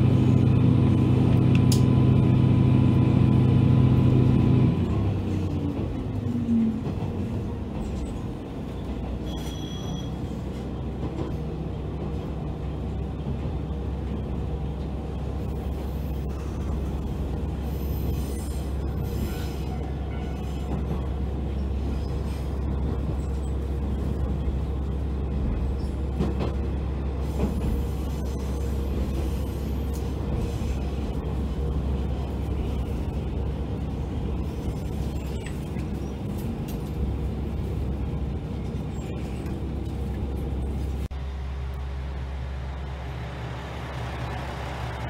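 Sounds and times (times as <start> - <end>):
rumbling wheel and rail noise: 0.0 - 45.0.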